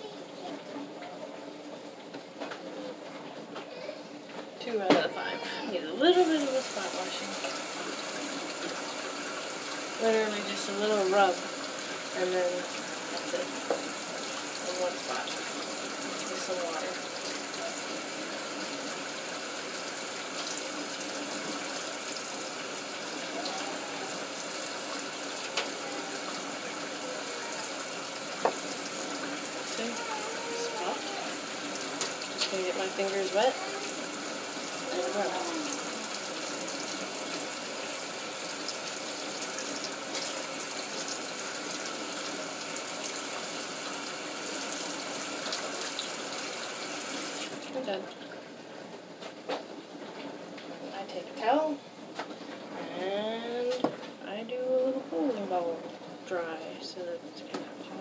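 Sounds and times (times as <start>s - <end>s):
tap water running into sink: 6.1s - 48.4s
tap running into sink: 13.6s - 14.0s, 28.4s - 29.4s.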